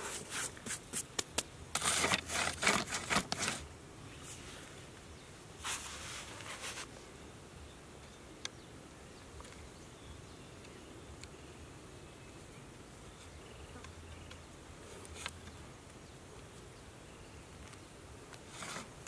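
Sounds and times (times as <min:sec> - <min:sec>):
hands rustling plastic colander and sand: 0:00.0 - 0:04.8, 0:05.6 - 0:06.9.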